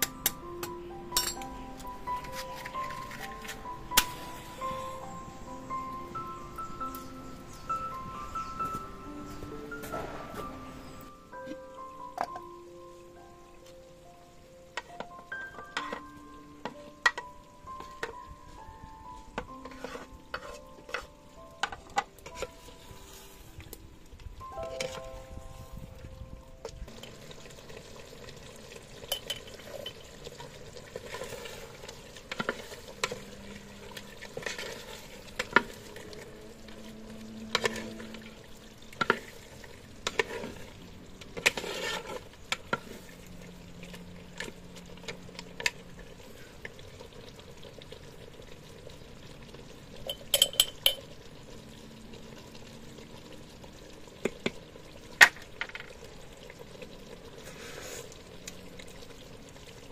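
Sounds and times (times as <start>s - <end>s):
sauce simmering and sizzling: 2.0s - 26.0s, 26.6s - 59.9s
ladle scraping clay pot: 19.6s - 21.1s, 29.1s - 36.3s, 37.5s - 45.2s.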